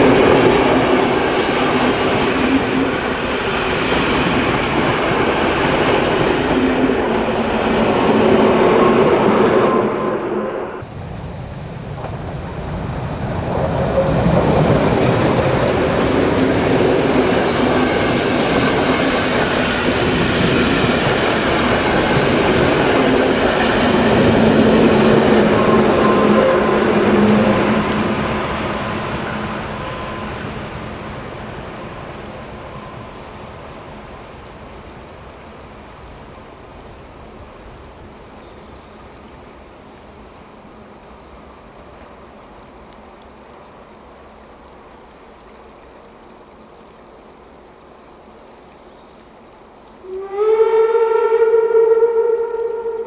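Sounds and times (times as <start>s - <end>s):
passenger train rolling past: 0.0s - 35.2s, 50.0s - 53.0s.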